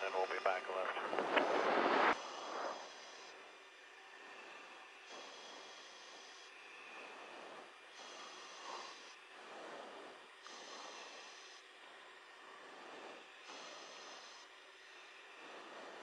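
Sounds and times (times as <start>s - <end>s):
radio channel hiss: 0.0s - 3.3s.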